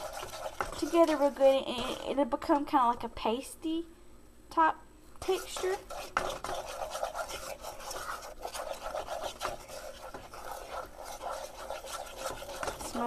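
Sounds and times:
utensil scraping paste in saucepan: 0:00.0 - 0:02.2, 0:05.2 - 0:13.0.

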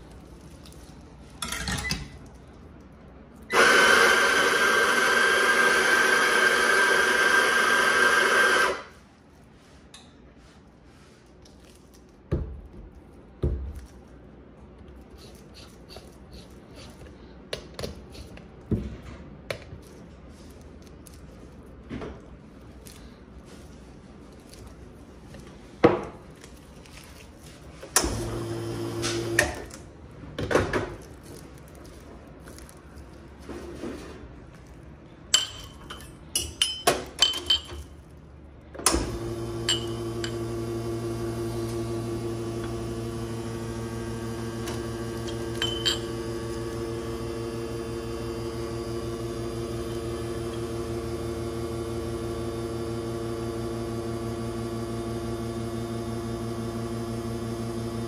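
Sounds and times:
espresso machine pump humming: 0:03.5 - 0:08.8, 0:39.0 - 0:58.0.

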